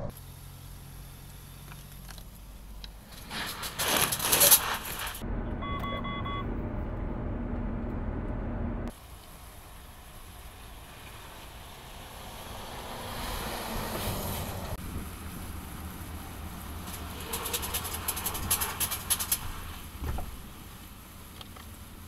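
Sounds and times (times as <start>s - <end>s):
sharp clicks and rattles: 16.8s - 20.2s.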